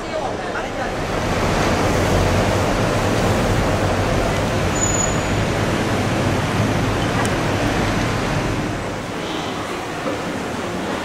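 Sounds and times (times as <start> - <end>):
city street traffic: 0.0 - 11.0
thin high whistle: 4.7 - 5.4.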